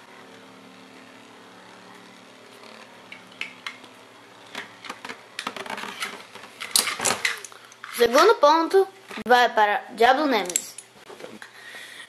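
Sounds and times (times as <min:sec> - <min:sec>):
spinning tops whirring: 0:00.0 - 0:08.3.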